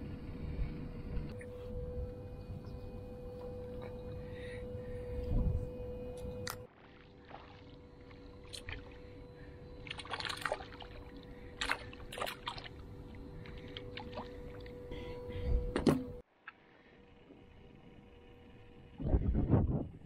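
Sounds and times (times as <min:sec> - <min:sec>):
faint steady hum: 0:00.0 - 0:20.0
fish splashing in water: 0:09.8 - 0:12.8.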